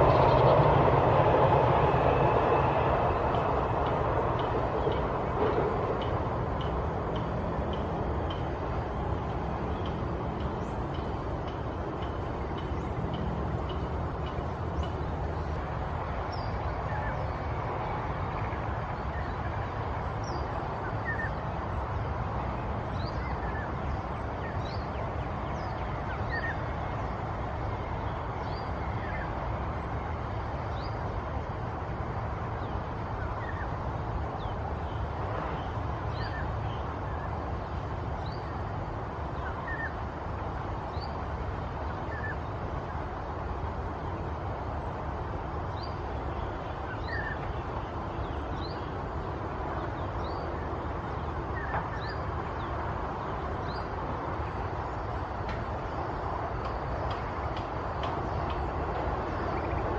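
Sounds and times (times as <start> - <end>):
steady low rumble: 0.0 - 16.5.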